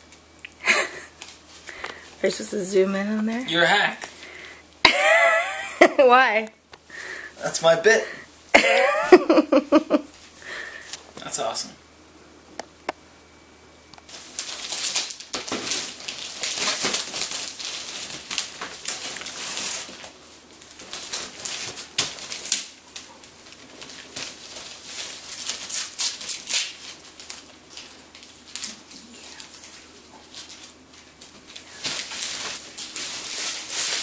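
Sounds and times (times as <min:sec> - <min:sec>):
wrapping paper crinkling: 0:00.7 - 0:02.2, 0:14.0 - 0:34.0.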